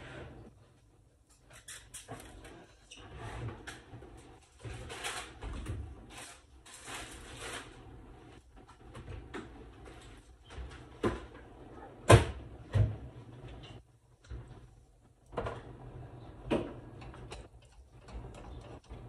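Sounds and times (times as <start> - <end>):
rustling: 4.3 - 8.5
sharp kitchen knocks: 12.1 - 13.1.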